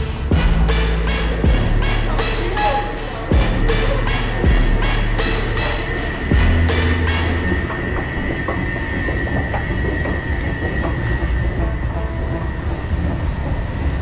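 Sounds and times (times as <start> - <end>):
escalator mechanical rumble: 0.0 - 14.0
high whine: 0.0 - 14.0.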